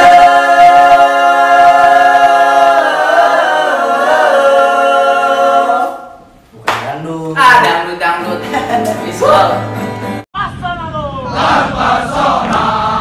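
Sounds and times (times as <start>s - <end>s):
male voices singing a cappella: 0.0s - 6.1s.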